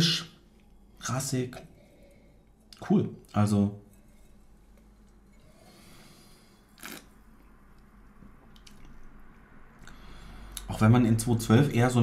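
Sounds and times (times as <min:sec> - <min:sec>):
sharp slurp: 0:06.7 - 0:07.2
sipping from a glass: 0:06.7 - 0:07.2.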